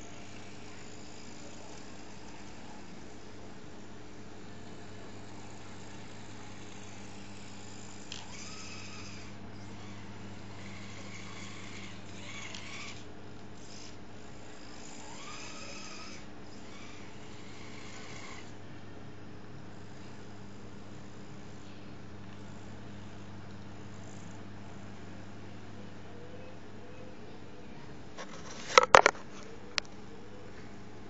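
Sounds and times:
electric motor whining: 0:00.0 - 0:18.6
steady low hum: 0:00.0 - 0:31.0.

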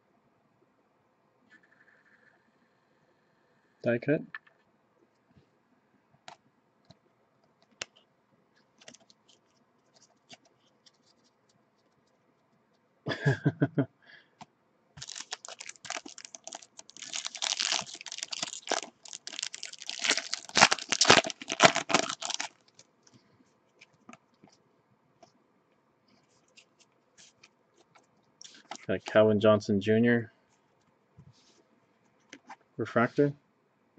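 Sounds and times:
wrapper tearing and crinkling: 0:15.0 - 0:22.8.

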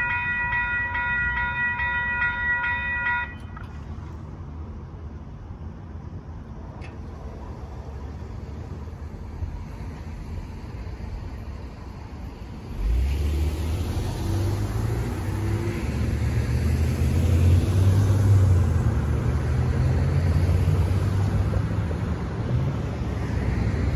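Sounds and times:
cars driving past: 0:00.0 - 0:23.9.

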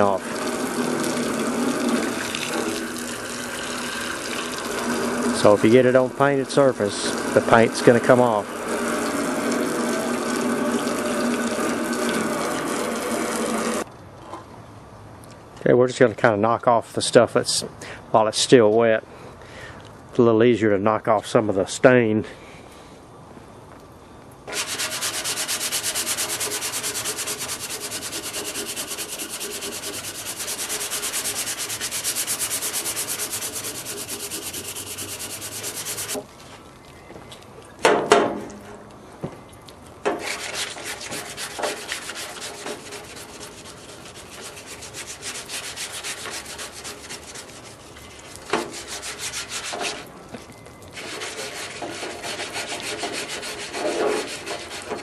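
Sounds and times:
brush scrubbing metal: 0:00.0 - 0:13.8, 0:24.5 - 0:36.2, 0:40.1 - 0:50.1, 0:51.0 - 0:55.0.

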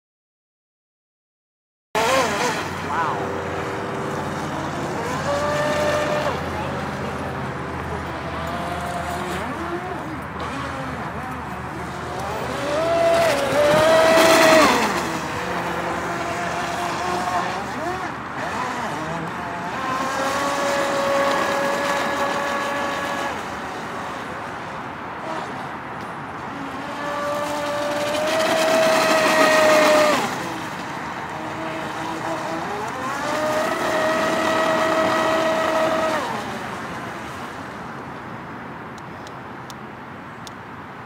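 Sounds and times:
rc speedboat motor whining: 0:02.0 - 0:24.3, 0:25.2 - 0:25.6, 0:26.4 - 0:37.4
hull hissing over water: 0:11.8 - 0:24.2, 0:26.6 - 0:37.3.

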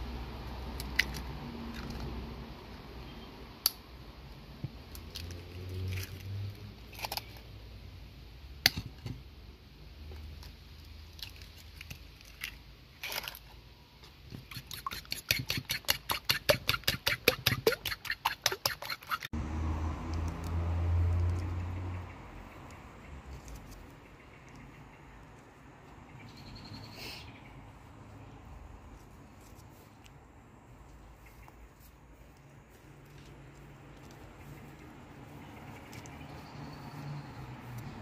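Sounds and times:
egg beaten in bowl: 0:14.4 - 0:19.3.

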